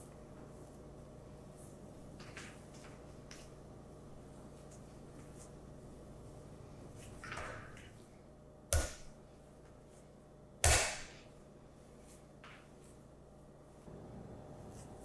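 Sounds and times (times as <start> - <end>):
dough being kneaded: 0.0 - 15.0.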